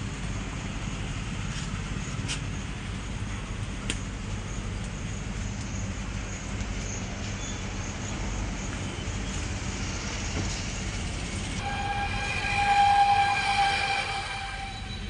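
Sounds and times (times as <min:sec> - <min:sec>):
horn-like tone: 0:11.6 - 0:15.0.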